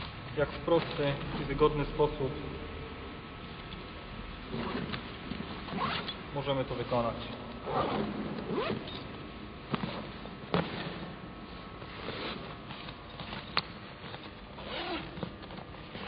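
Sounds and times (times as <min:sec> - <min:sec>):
nylon fabric rustle: 0:04.5 - 0:06.2, 0:07.7 - 0:08.9, 0:09.7 - 0:16.0.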